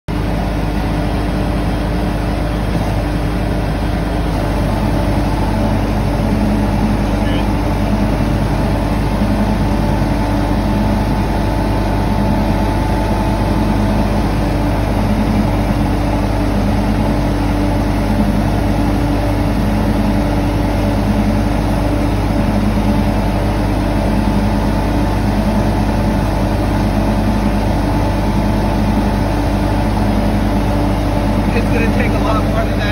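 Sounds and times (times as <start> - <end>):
cement mixer churning: 0.1 - 32.9
skid steer engine running: 0.1 - 32.9.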